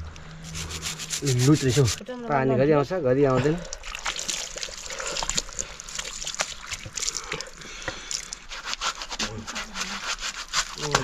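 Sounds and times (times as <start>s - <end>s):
water dribbling and splashing: 0.1s - 2.1s, 3.2s - 11.0s
water drips: 3.2s - 8.6s.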